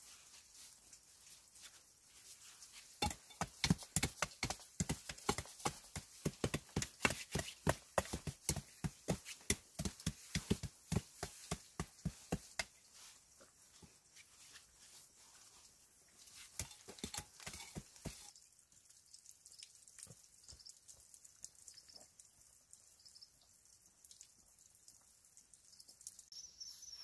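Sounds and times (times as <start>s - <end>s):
stone and tool knocking soil: 2.9s - 12.8s, 16.4s - 18.3s.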